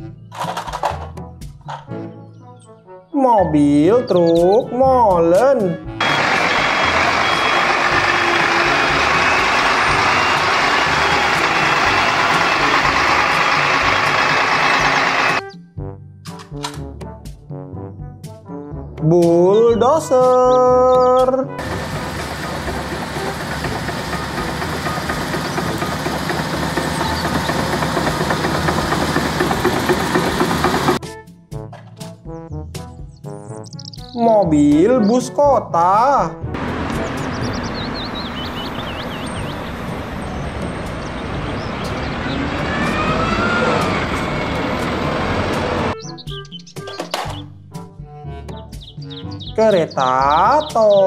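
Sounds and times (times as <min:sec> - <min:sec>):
bulldozer diesel engine running: 0:06.0 - 0:15.4, 0:21.6 - 0:31.0, 0:36.6 - 0:46.0
bus driving past: 0:06.0 - 0:15.4, 0:21.6 - 0:31.0, 0:36.6 - 0:46.0
steel tracks clattering: 0:06.0 - 0:15.4, 0:21.6 - 0:31.0.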